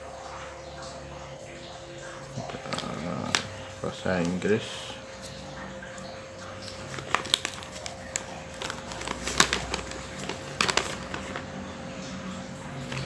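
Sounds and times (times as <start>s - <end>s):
faint hum: 0.0s - 13.0s
paper rustling and crinkling: 2.3s - 4.5s, 6.4s - 11.6s, 12.7s - 13.0s.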